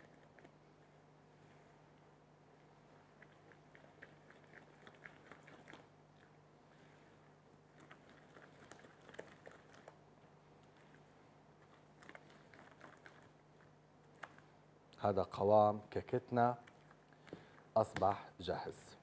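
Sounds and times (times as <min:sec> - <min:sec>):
low steady hum: 0:00.0 - 0:19.0
cake batter stirred in bowl: 0:03.2 - 0:10.0, 0:10.7 - 0:14.4.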